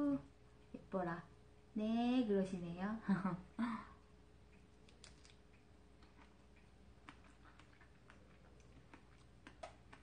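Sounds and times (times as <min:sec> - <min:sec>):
faint small clicks: 0:04.5 - 0:08.2.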